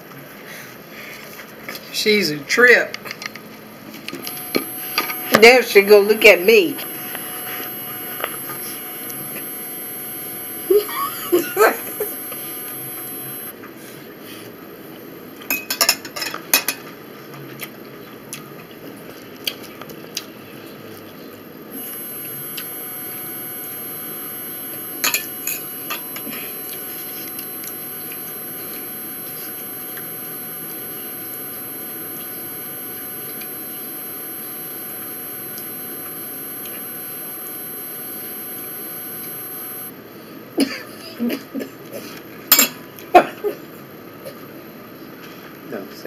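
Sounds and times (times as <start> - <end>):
appliance humming: 4.2 - 13.5, 21.8 - 39.9.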